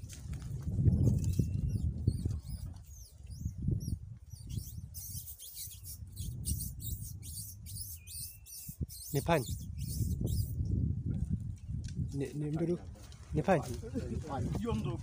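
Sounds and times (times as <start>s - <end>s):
footsteps rustling in dry brush: 0.0s - 2.9s, 12.8s - 15.0s
birds chirping: 0.9s - 10.8s.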